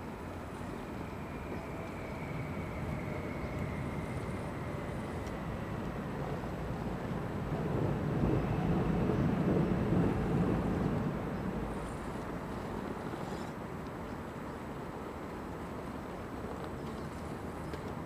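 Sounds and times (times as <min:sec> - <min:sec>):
low rumbling noise: 0:00.0 - 0:13.3.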